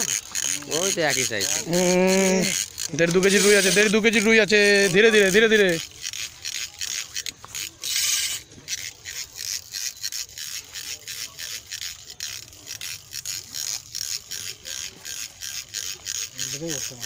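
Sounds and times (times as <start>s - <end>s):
fishing reel ratcheting: 0.0s - 17.0s.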